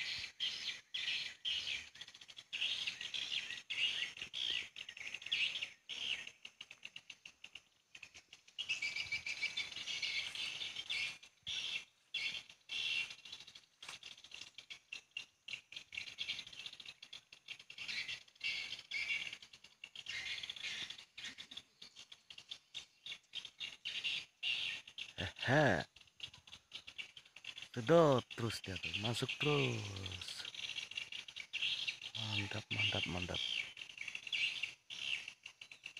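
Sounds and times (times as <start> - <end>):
swiftlets twittering: 27.7 - 30.5, 32.2 - 33.4.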